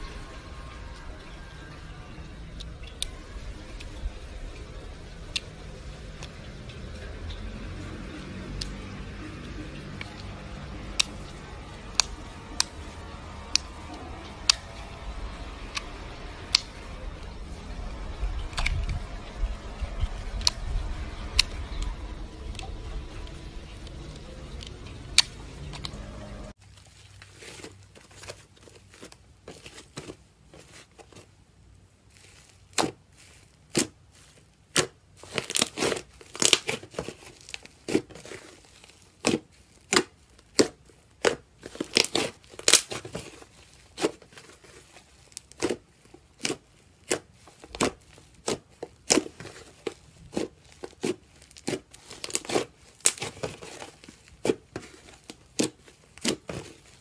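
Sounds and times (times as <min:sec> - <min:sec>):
slime popping and crackling: 0:32.1 - 0:57.0.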